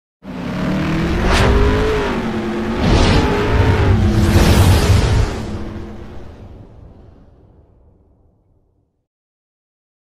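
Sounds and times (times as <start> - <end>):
deep boom and whoosh effect: 0.9 - 8.6.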